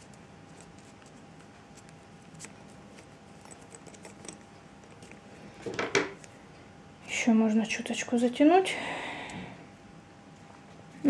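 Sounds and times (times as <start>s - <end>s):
cord rustling and clicking: 0.0s - 6.4s
faint steady hum: 0.0s - 11.0s.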